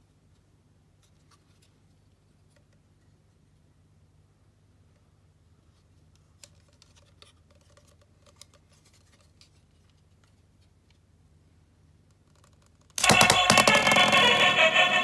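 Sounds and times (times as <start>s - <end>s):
plastic toy parts clicking: 12.3s - 14.5s.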